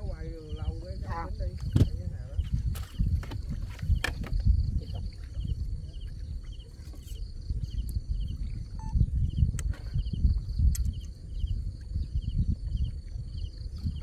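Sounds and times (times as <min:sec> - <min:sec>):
insect chirping: 0:00.0 - 0:14.0
wind buffeting microphone: 0:00.0 - 0:14.0.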